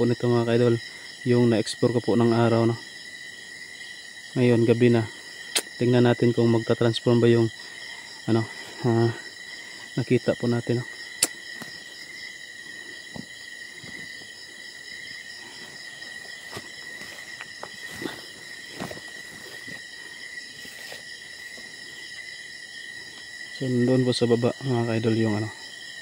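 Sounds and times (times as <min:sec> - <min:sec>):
crickets and insects trilling: 0:00.0 - 0:26.0
footsteps through undergrowth: 0:13.0 - 0:14.4, 0:15.5 - 0:22.3.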